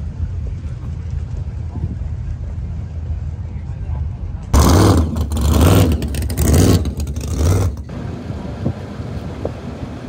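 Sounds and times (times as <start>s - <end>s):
pickup truck engine revving: 4.6s - 8.3s.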